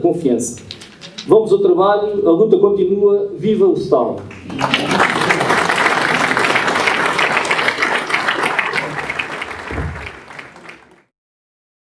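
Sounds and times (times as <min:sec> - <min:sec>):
audience applauding: 0:04.3 - 0:11.1.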